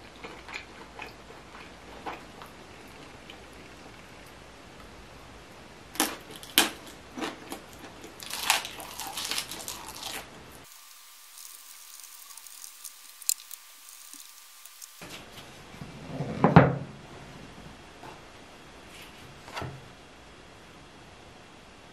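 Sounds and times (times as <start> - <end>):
crunchy chewing: 0.0 - 4.4, 5.9 - 15.0.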